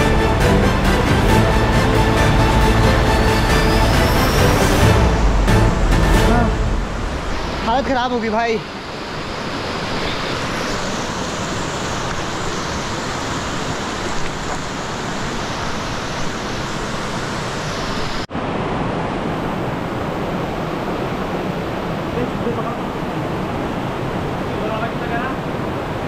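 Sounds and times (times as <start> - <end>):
stream flowing over stones: 7.2 - 26.0.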